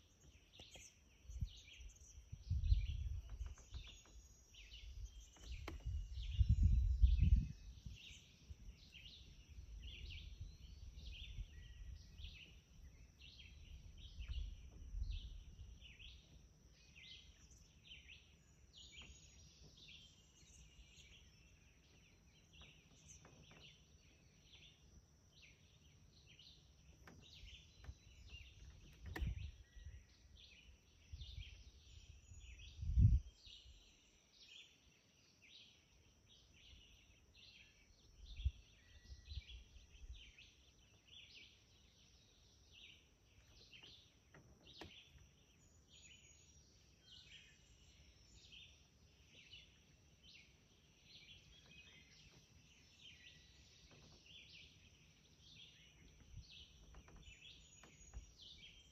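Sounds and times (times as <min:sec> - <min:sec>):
birds chirping: 0:00.0 - 0:58.9
low microphone rumbles: 0:02.3 - 0:04.0, 0:04.6 - 0:08.8, 0:13.7 - 0:16.0, 0:31.1 - 0:33.3.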